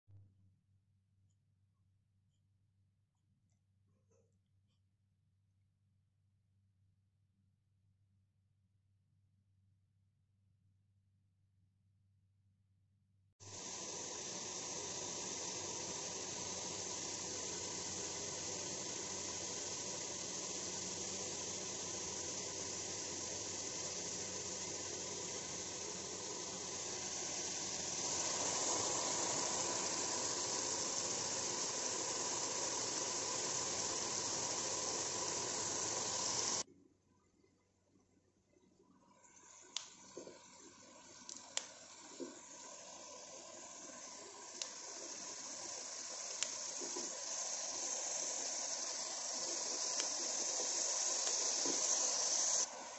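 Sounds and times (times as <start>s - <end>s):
steady hiss: 13.4s - 36.6s, 39.4s - 52.9s.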